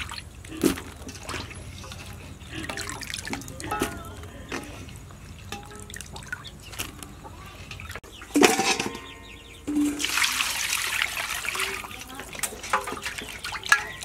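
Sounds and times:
water pouring into metal bowl: 0.0s - 6.6s, 9.7s - 14.0s.

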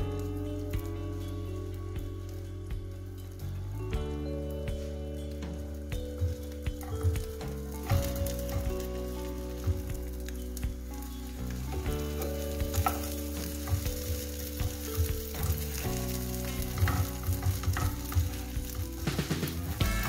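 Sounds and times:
omelet sizzling in a frying pan: 0.0s - 20.0s
spatula clicking and scraping pan: 11.6s - 20.0s.

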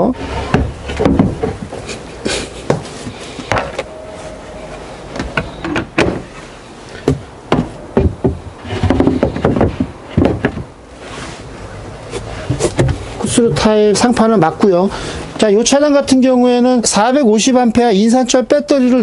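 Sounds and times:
wooden knocks and taps: 0.5s - 1.8s, 7.0s - 10.7s.

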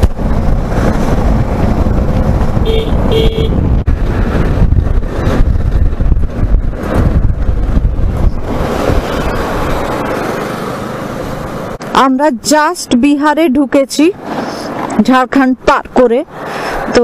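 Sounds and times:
wind buffeting microphone: 0.0s - 11.9s
motorcycle engine and road rumble: 0.0s - 17.0s.

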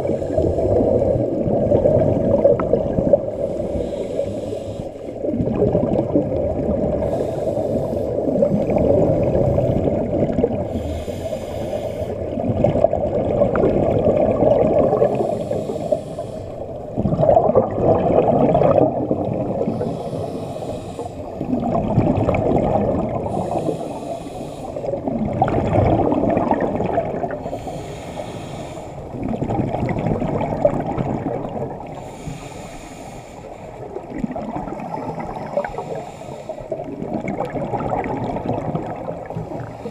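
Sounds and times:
regulator inhale hiss: 0.0s - 1.1s, 3.3s - 5.3s, 6.9s - 8.4s, 10.7s - 12.4s, 15.0s - 16.8s, 19.6s - 21.5s, 23.2s - 25.0s, 27.4s - 29.2s, 31.9s - 33.9s, 35.0s - 36.8s
exhaled bubbles gurgling: 0.0s - 39.9s.

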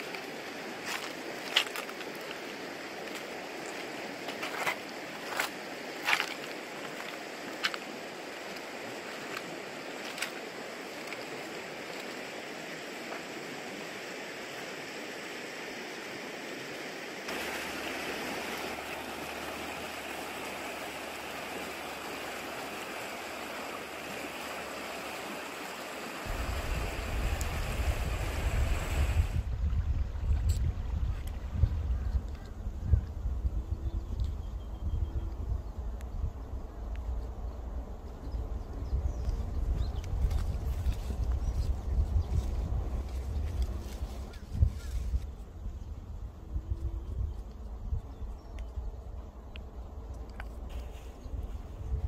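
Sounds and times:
river water rushing: 0.0s - 29.4s.

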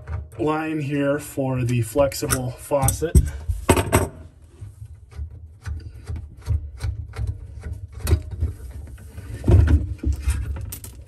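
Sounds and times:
metallic clicks and scrapes: 4.6s - 11.0s.

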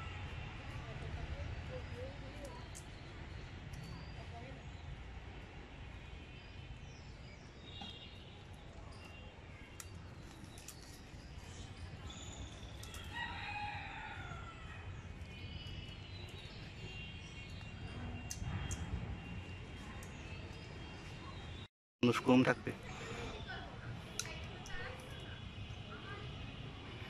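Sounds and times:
small birds chirping: 6.3s - 21.7s
rooster crowing: 12.9s - 14.8s.

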